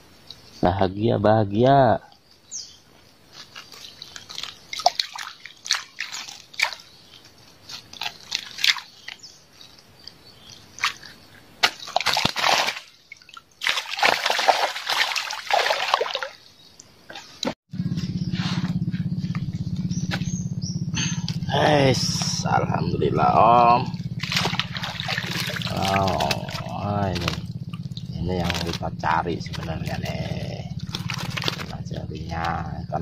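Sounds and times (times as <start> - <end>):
water splashing and sloshing: 3.3 - 17.6, 23.1 - 32.3
steady low hum: 17.7 - 33.0.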